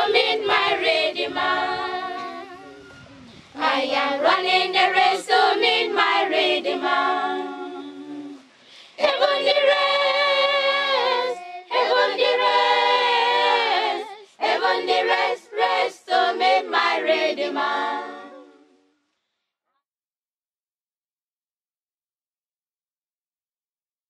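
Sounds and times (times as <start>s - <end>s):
choir singing unaccompanied: 0.0s - 18.9s.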